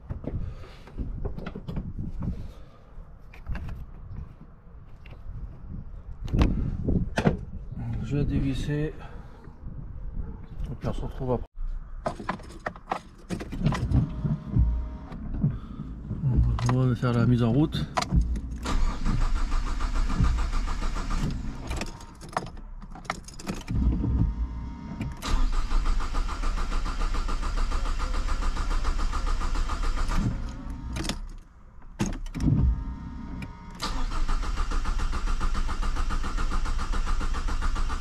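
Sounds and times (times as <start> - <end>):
diesel engine cranking on starter: 13.4 - 22.4, 23.3 - 31.3, 32.2 - 38.0.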